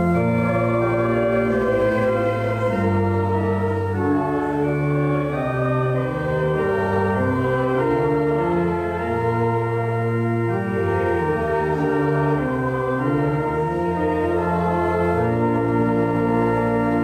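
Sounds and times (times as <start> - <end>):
church organ playing chords: 0.0 - 17.0.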